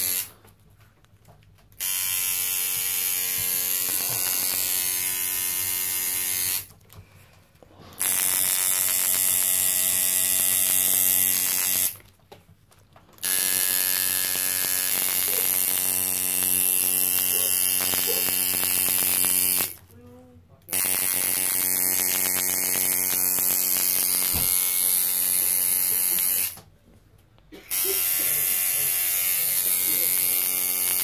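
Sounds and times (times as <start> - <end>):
tattoo machine buzzing: 0.0 - 0.4, 1.8 - 6.7, 8.0 - 12.0, 13.2 - 19.9, 20.7 - 26.6, 27.6 - 31.0.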